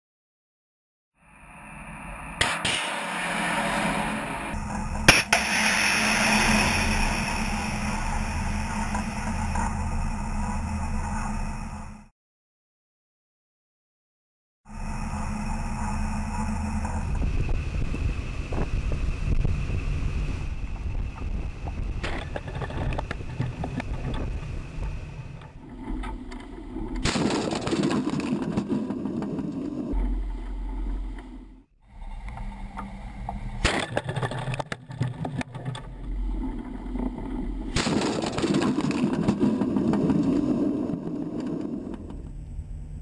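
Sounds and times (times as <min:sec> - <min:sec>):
wind over microphone: 0:16.6 - 0:27.0.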